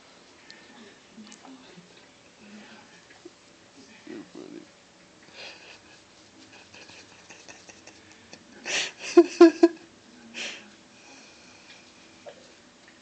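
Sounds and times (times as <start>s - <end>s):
person chuckling: 6.6s - 9.8s.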